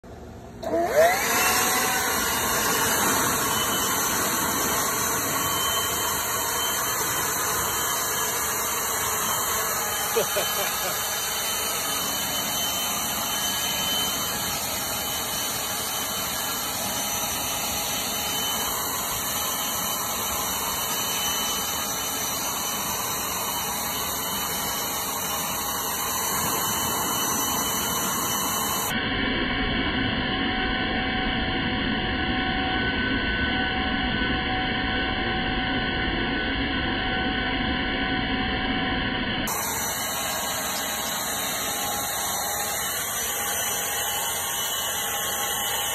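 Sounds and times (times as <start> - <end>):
leaf blower running: 0.5 - 29.0, 39.4 - 45.9.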